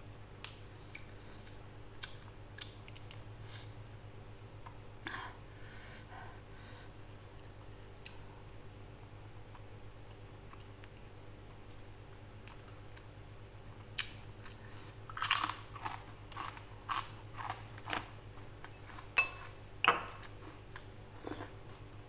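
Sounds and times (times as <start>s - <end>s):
crispy cracker crunching: 14.0s - 18.2s.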